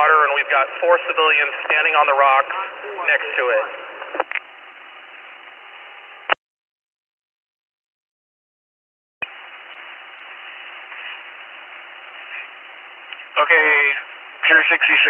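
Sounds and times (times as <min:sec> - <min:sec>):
radio static hiss: 0:00.0 - 0:06.4, 0:09.2 - 0:15.0
radio click: 0:04.0 - 0:04.5.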